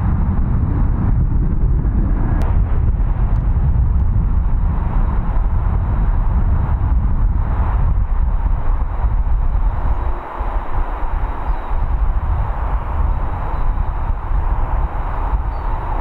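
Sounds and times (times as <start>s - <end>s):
jet engines rumbling: 0.0s - 16.0s.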